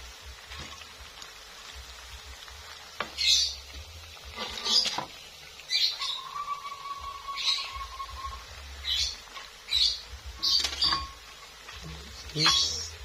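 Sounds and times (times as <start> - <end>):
crackers sizzling in oil: 0.0 - 13.0
metal spatula scraping a wok: 4.2 - 5.1, 10.4 - 11.4.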